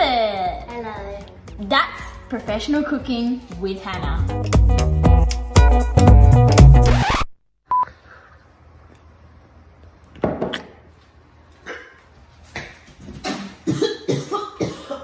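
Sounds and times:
short beep: 0:07.7 - 0:07.9
boy gagging and coughing: 0:12.6 - 0:15.0.

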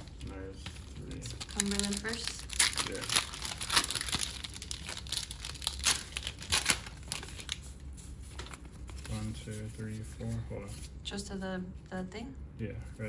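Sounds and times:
foil wrapper crinkling and tearing: 0:01.0 - 0:07.7.

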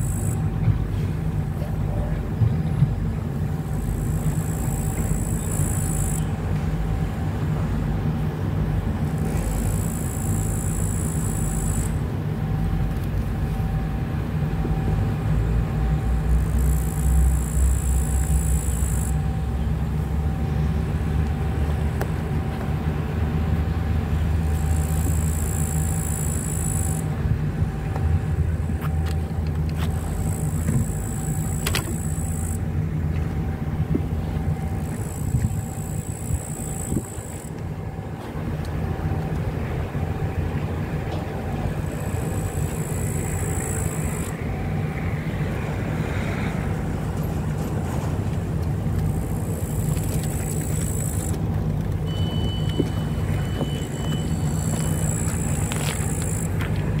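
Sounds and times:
faint pulsing tone: 0:00.0 - 0:00.9, 0:01.6 - 0:07.3, 0:09.1 - 0:38.2, 0:41.3 - 0:45.5, 0:52.0 - 0:56.6
diesel engine rumbling: 0:00.0 - 0:57.0
high buzz: 0:09.2 - 0:12.0.

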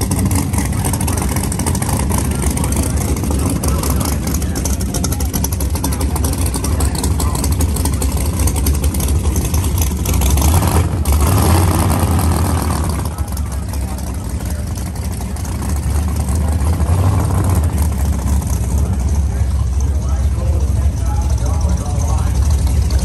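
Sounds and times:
loud car engine idling: 0:00.0 - 0:23.0
people's voices: 0:00.0 - 0:23.0.

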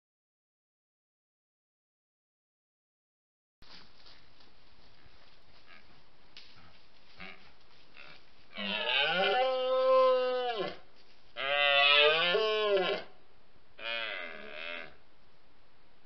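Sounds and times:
deer stag roaring: 0:08.0 - 0:10.8, 0:11.4 - 0:13.2, 0:13.8 - 0:15.0.

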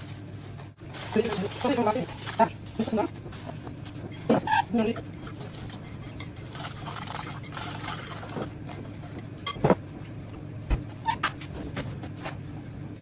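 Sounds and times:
utensil stirring batter in glass bowl: 0:01.0 - 0:09.6.

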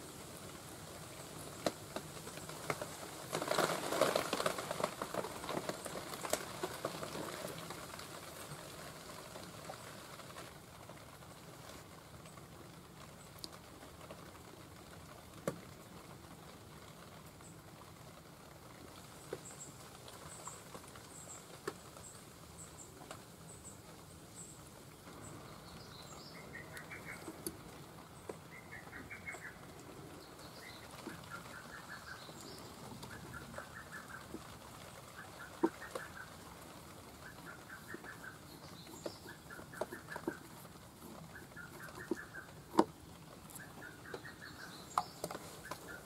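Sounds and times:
birds chirping and trilling: 0:25.2 - 0:27.5, 0:28.1 - 0:36.5, 0:37.2 - 0:42.8, 0:43.5 - 0:46.0.

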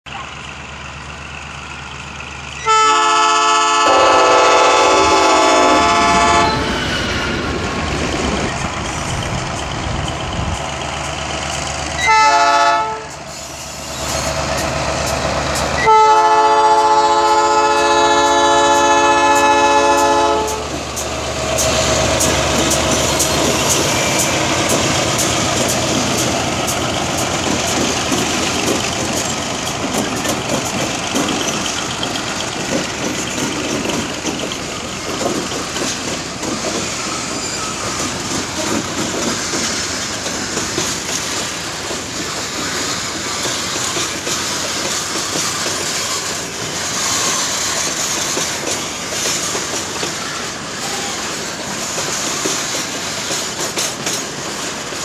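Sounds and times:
diesel engines rumbling: 0:00.1 - 0:44.2
locomotive air horn blasts: 0:02.6 - 0:06.8, 0:12.0 - 0:13.2, 0:15.8 - 0:20.7
wheels clicking on track: 0:07.6 - 0:55.0.

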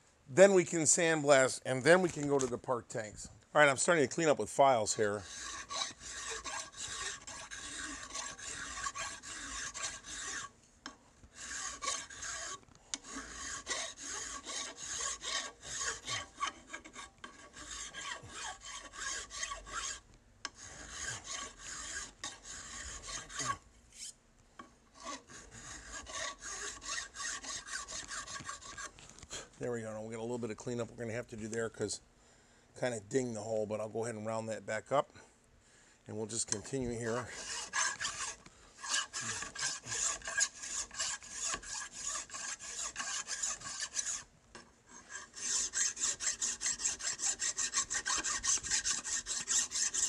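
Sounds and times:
hand file rasping on steel: 0:03.8 - 0:24.2, 0:25.0 - 0:28.9, 0:36.5 - 0:50.0.

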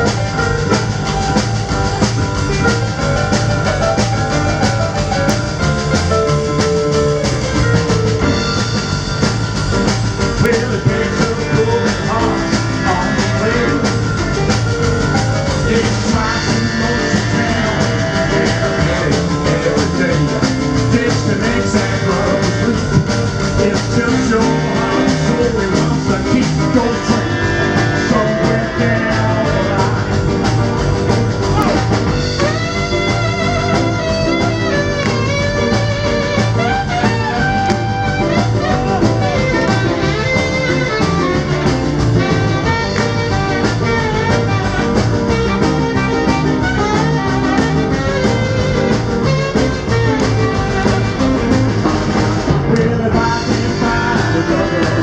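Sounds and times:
live rock and roll band: 0:00.0 - 0:55.0
man singing: 0:10.4 - 0:30.9, 0:45.4 - 0:55.0.

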